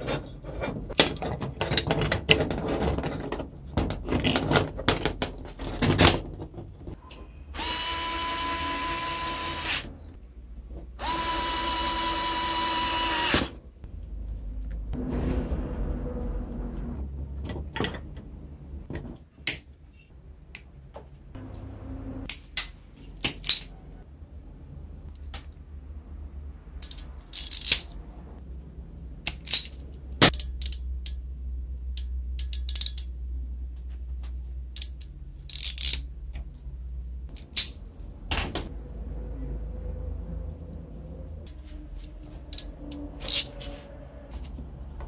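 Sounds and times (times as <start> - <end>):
low steady hum: 0.0 - 45.0.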